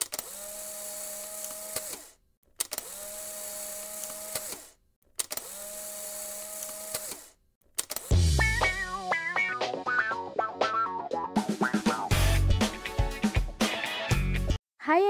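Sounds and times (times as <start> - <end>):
small electric motor whirring: 0.0 - 8.1.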